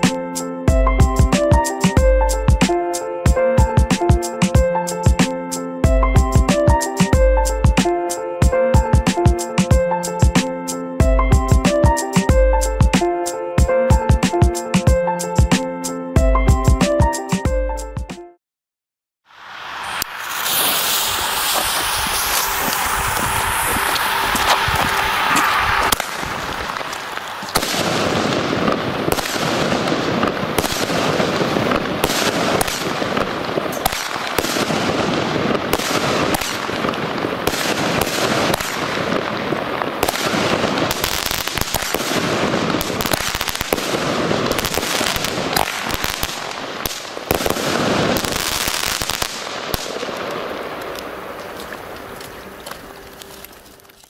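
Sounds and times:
firework launches: 0:19.3 - 0:51.8
firework shell bursts: 0:19.5 - 0:50.2.

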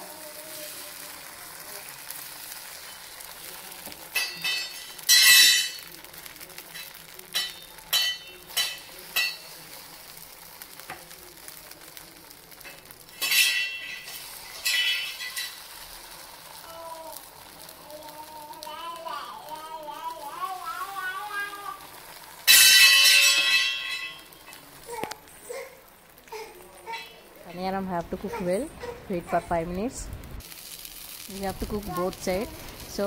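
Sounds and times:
batter sizzling in hot oil: 0:00.0 - 0:33.0
steady frying hiss: 0:00.0 - 0:33.0.

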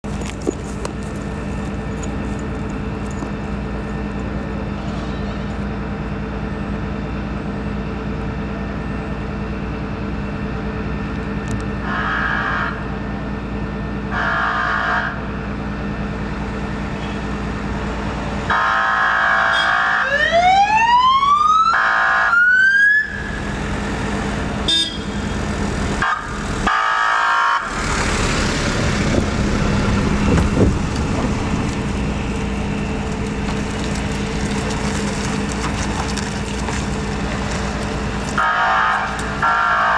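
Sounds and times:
engine hum: 0:00.0 - 0:39.9
siren wailing: 0:11.8 - 0:13.0, 0:14.1 - 0:15.3, 0:18.5 - 0:28.3, 0:38.3 - 0:39.9
vehicle horn blasts: 0:19.4 - 0:19.8, 0:24.7 - 0:25.3.

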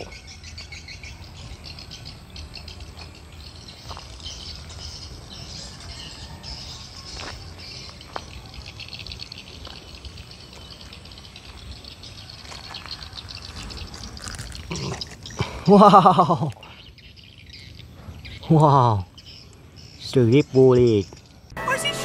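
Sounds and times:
insects chirring: 0:00.0 - 0:21.6
birds chirping: 0:00.0 - 0:22.0.

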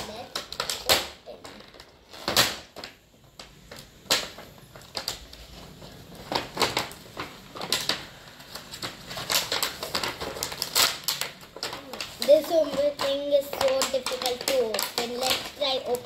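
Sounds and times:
plastic wrapping crinkling: 0:00.0 - 0:16.0
plastic toy case clicking: 0:09.2 - 0:16.0.

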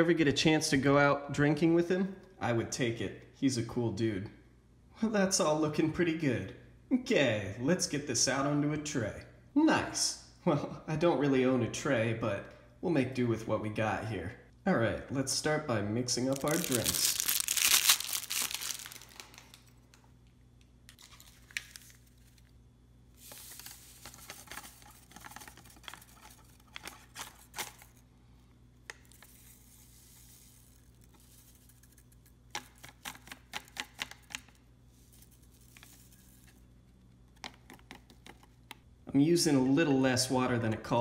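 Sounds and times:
plastic pouch crinkling and tearing: 0:16.2 - 0:19.8, 0:20.9 - 0:22.6.

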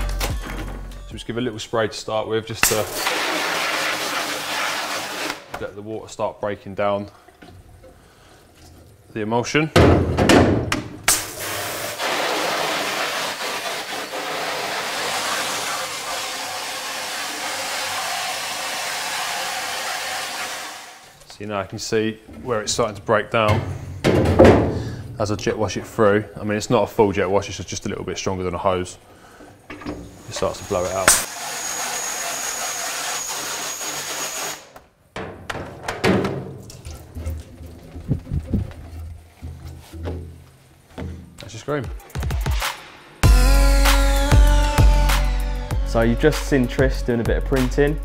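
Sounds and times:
pressure washer spraying water: 0:02.6 - 0:05.5, 0:11.1 - 0:21.0, 0:30.2 - 0:31.7.

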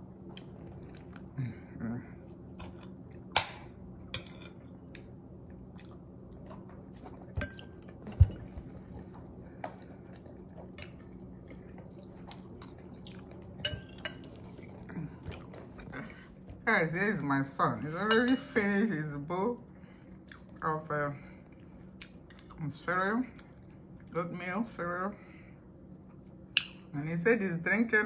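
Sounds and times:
steady low hum: 0:00.0 - 0:28.0
person chewing: 0:00.1 - 0:03.4, 0:04.5 - 0:16.4, 0:20.1 - 0:20.6
spoon clinking on ceramic plate: 0:13.6 - 0:14.3.

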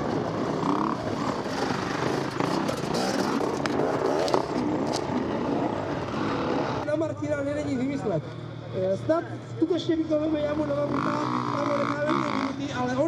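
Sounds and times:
motorcycle engines revving: 0:00.0 - 0:13.0.

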